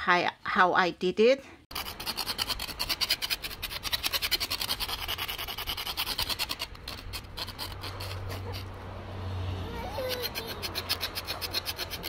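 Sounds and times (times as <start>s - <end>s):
plastic ruler rasping on wire: 1.7s - 8.8s, 10.0s - 12.0s.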